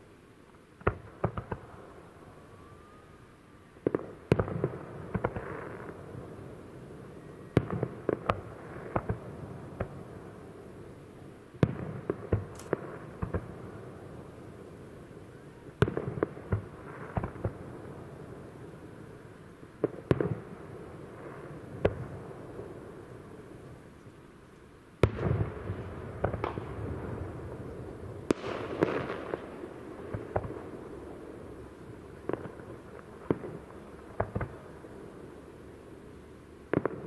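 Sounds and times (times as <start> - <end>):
fireworks crackling: 3.8 - 23.9, 25.0 - 37.0
fireworks bangs: 25.0 - 35.3.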